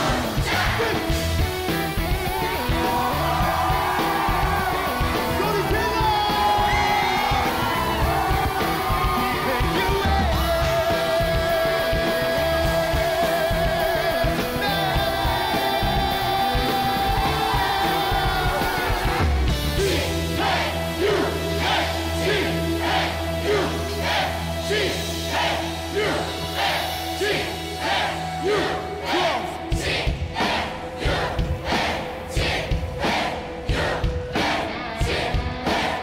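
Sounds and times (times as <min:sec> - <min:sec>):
crowd shouts: 0:00.0 - 0:01.2, 0:01.9 - 0:10.6
crowd singing along: 0:00.0 - 0:36.0
live pop-rock band: 0:00.0 - 0:36.0.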